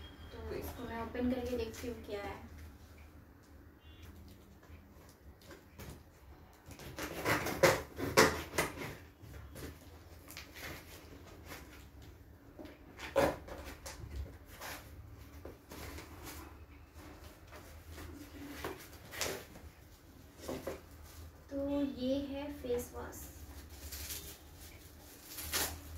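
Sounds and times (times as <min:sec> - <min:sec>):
tape tearing off cardboard box: 0:06.7 - 0:09.0, 0:25.1 - 0:25.9.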